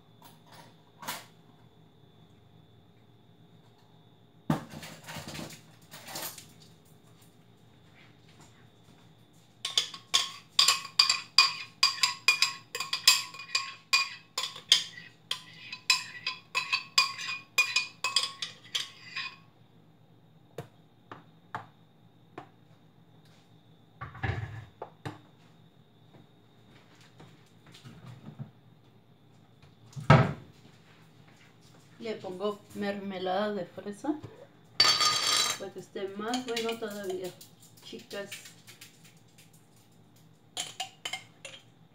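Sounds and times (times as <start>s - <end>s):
spoon tapping blender jar: 9.7s - 18.8s.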